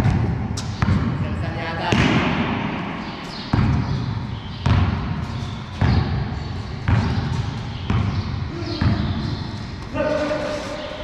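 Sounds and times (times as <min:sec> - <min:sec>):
basketball bouncing on concrete: 0:00.0 - 0:01.2, 0:01.8 - 0:02.4, 0:03.4 - 0:09.3.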